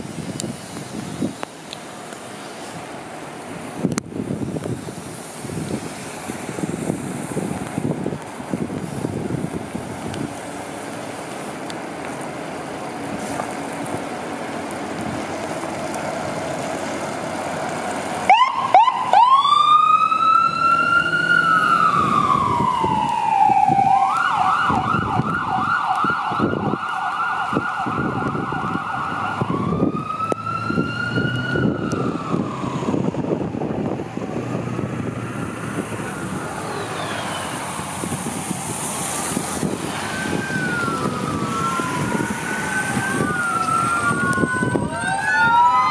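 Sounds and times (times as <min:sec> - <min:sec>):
fire engine siren: 0:05.4 - 0:45.9
distant siren wails: 0:15.4 - 0:45.9.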